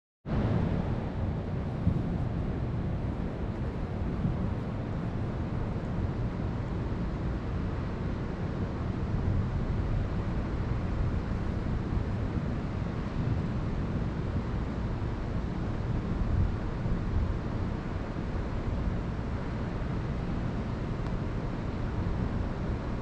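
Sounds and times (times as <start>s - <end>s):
wind buffeting microphone: 0.3s - 23.0s.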